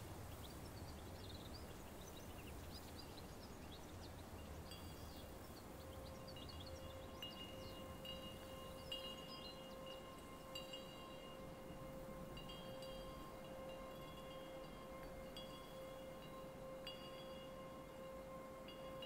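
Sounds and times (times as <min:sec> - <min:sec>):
metallic chimes ringing: 0:04.6 - 0:19.0.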